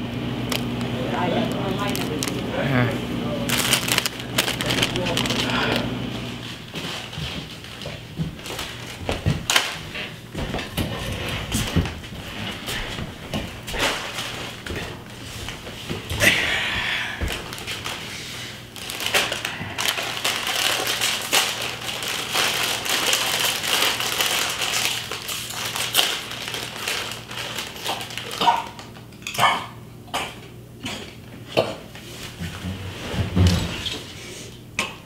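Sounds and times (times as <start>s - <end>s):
chips crunching: 0.4s - 2.7s, 3.4s - 10.1s, 17.2s - 29.0s
plastic bag crinkling: 0.4s - 2.7s, 3.4s - 10.2s, 13.4s - 15.8s, 17.2s - 29.0s.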